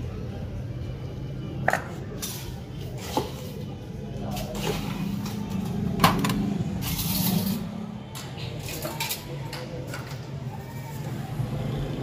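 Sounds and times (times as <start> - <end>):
murmur of voices: 0.0 - 12.0
metal spatula scraping trays: 6.7 - 7.8.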